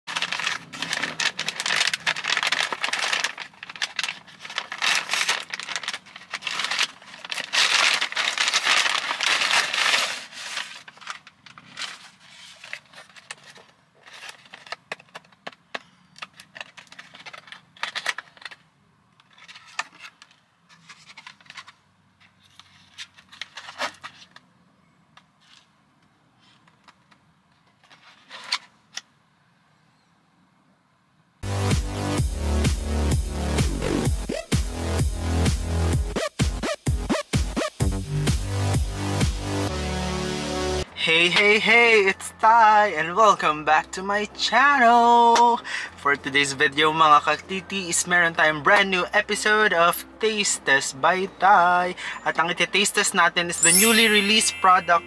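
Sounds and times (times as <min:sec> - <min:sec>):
cardboard box rustling: 0:00.1 - 0:15.0
paper bag crinkling and tearing: 0:00.1 - 0:15.2, 0:16.3 - 0:18.6.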